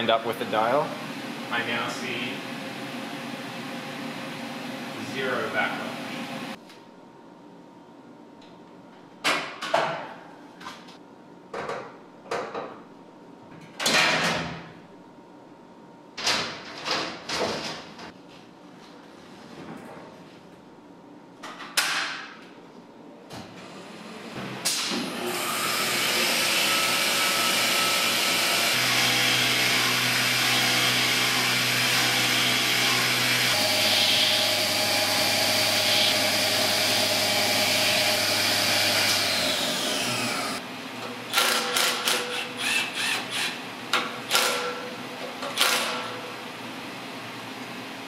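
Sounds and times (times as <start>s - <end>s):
impact driver bursts: 41.3s - 43.6s.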